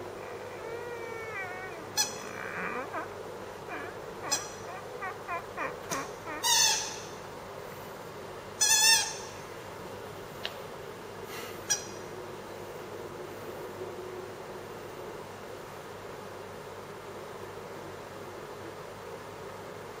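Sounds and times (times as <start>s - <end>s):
puppy whimpering and squeaking: 0.0s - 7.2s
puppy yipping: 0.2s - 7.2s.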